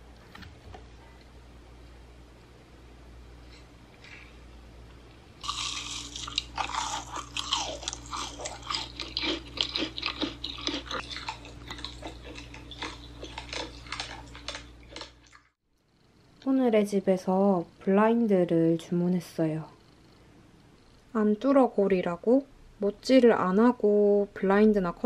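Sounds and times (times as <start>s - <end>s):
crisp crunching and chewing: 5.4s - 15.5s.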